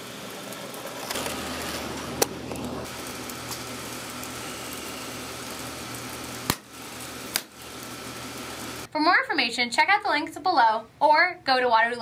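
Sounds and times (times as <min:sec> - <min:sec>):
electric blowers whirring: 0:00.0 - 0:08.9.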